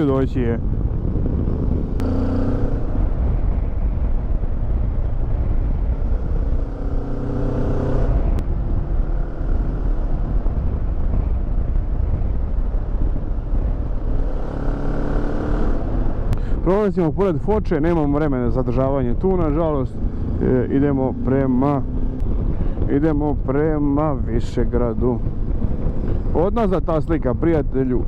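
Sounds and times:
road and wind noise: 0.0s - 28.0s
motorcycle engine running: 19.2s - 23.8s.

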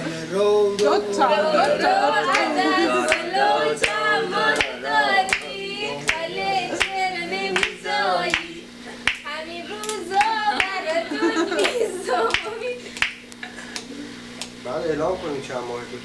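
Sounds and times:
voices singing: 0.0s - 13.0s
hand claps: 0.8s - 1.0s, 1.6s - 10.8s, 11.6s - 14.6s.

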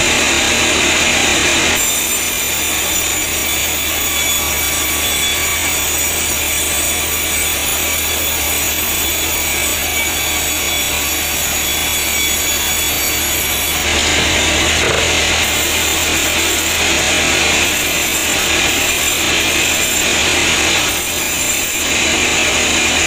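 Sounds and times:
band saw cutting through log: 0.0s - 23.0s
low machine hum: 13.8s - 17.5s.

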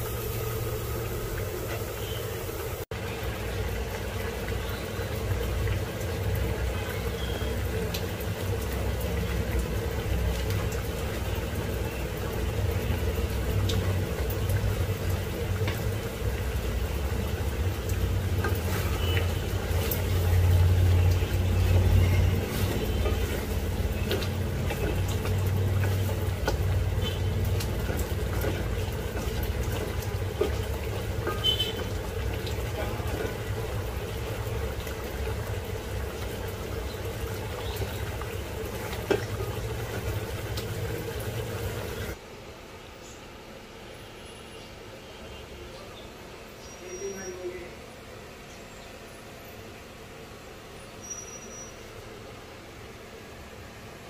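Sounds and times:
curry bubbling in a pan: 0.0s - 42.2s.

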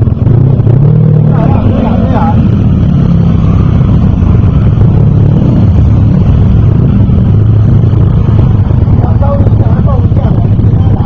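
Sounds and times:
scooter engines passing: 0.0s - 7.7s.

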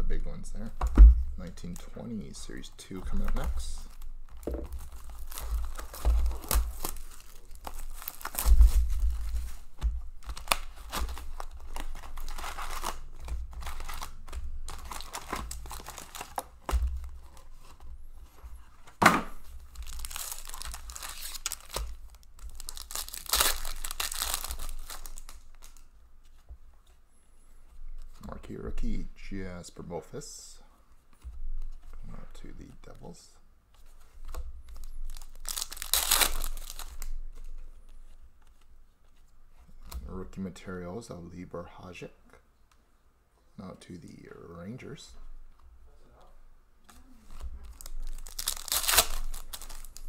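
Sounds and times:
cardboard and wrappers tearing: 3.2s - 17.8s, 19.6s - 25.8s, 34.7s - 37.1s, 47.0s - 50.0s.

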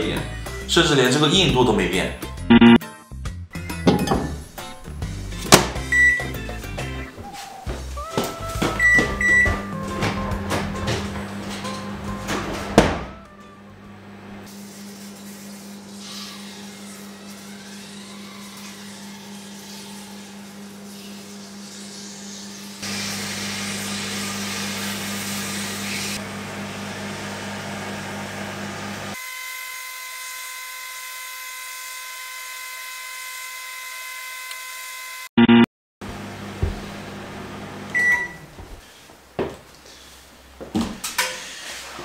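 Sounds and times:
microwave oven humming: 7.9s - 14.5s, 22.8s - 29.2s, 34.5s - 38.7s.

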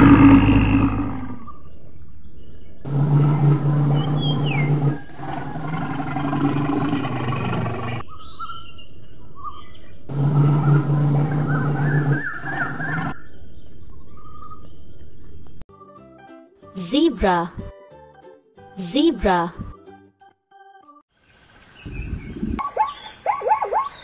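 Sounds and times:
bear growling: 0.0s - 1.7s, 2.7s - 8.0s, 9.6s - 13.2s
birds chirping: 0.0s - 15.6s, 21.2s - 24.0s.

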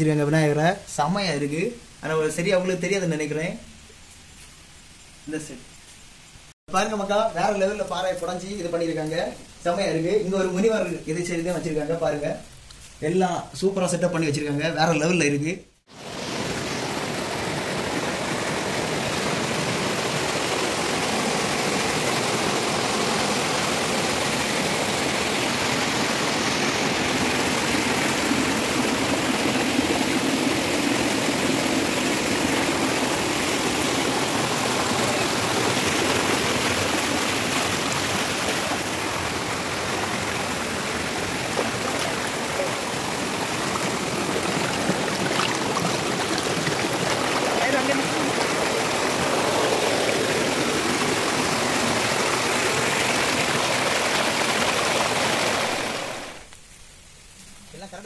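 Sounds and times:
waterfall rushing and splashing: 15.9s - 56.5s.

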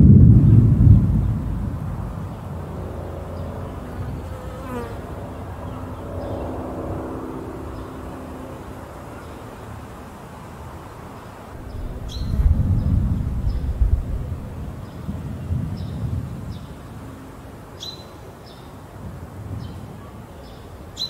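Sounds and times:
thunder rumbling: 0.0s - 3.8s, 11.5s - 17.0s.

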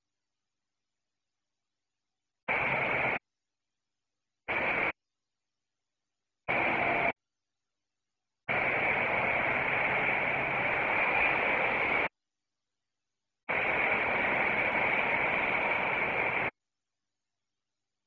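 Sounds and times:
hissing radio static: 2.5s - 3.2s, 6.5s - 7.1s.

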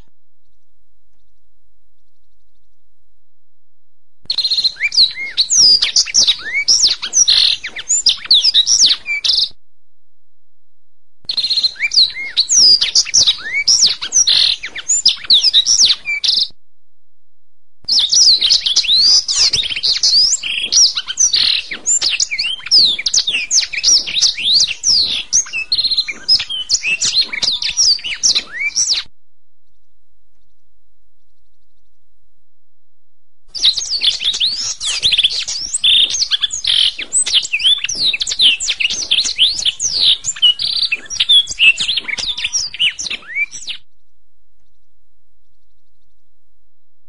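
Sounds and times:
canary singing: 4.3s - 9.5s, 11.3s - 16.5s, 17.9s - 29.1s, 33.5s - 43.8s.

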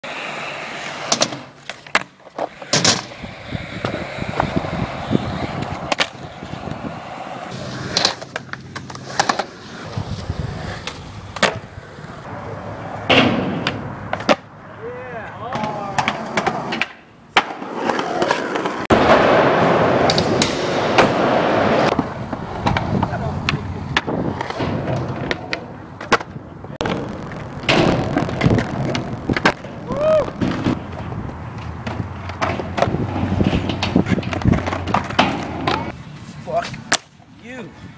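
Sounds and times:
skateboard wheels rolling on asphalt: 0.0s - 37.9s
skateboard wooden clacks: 1.0s - 6.8s, 15.5s - 36.0s.

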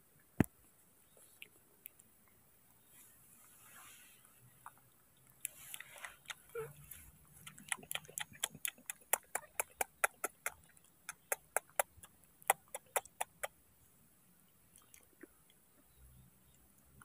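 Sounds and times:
monkey chewing with wet smacks: 4.5s - 13.5s, 14.7s - 15.6s.

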